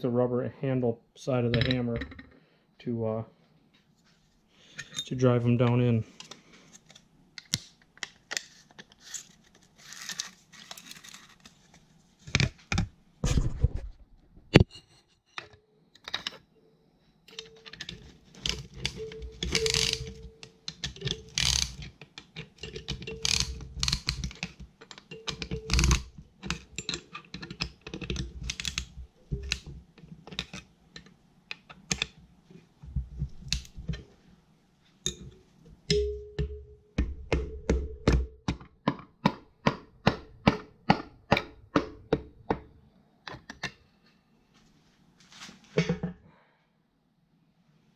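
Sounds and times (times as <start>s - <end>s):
metal clicks and clinks: 17.3s - 28.8s
piston driven with hammer handle: 35.9s - 38.3s.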